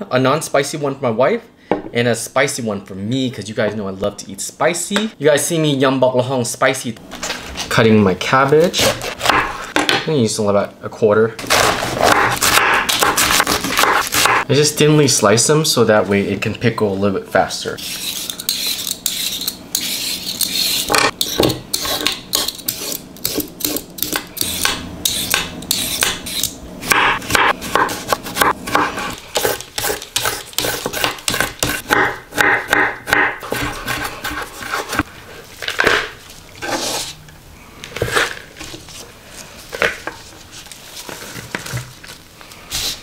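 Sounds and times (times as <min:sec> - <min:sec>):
vegetable peeler scraping carrots: 0:11.4 - 0:14.4, 0:17.8 - 0:26.6, 0:27.2 - 0:32.0, 0:33.4 - 0:35.1.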